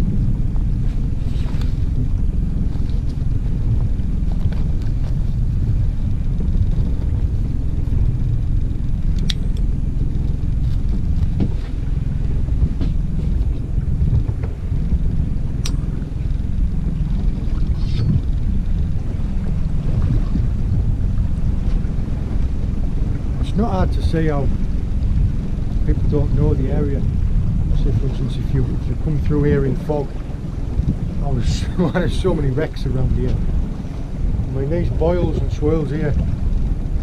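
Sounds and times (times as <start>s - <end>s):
boat engine rumbling: 0.0s - 37.0s
wind buffeting microphone: 0.0s - 37.0s.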